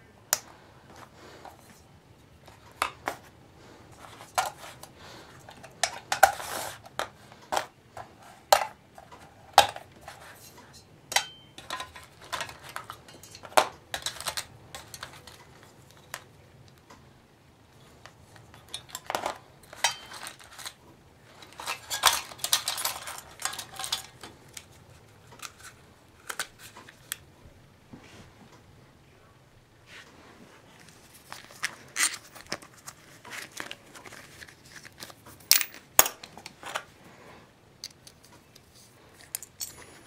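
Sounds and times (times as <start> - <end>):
keys and small items clattering: 18.5 - 25.8, 30.9 - 36.9, 37.8 - 40.0.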